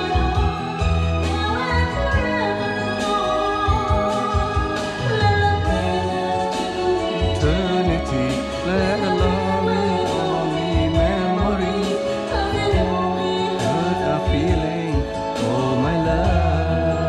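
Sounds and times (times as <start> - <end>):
person singing karaoke: 0.0 - 17.0.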